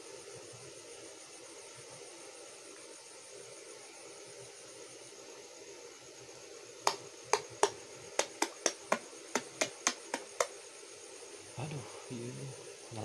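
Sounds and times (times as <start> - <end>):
hand slapping shallow water: 6.9 - 10.5.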